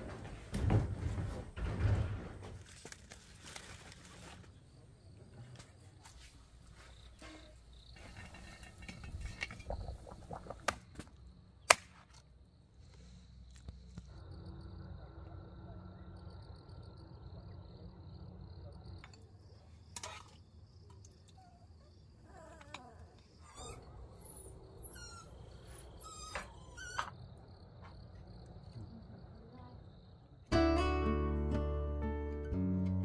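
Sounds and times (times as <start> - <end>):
high insect drone: 14.1 - 19.0.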